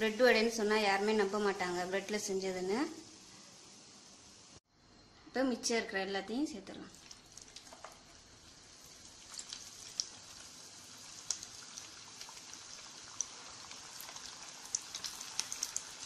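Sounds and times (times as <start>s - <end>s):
batter sizzling in hot oil: 0.0s - 4.6s, 6.6s - 16.0s
crackling pops of frying: 6.7s - 16.0s.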